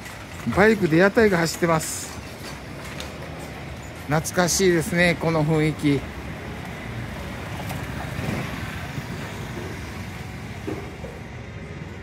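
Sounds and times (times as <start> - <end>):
street noise: 0.0 - 12.0
motor scooter passing: 4.7 - 12.0.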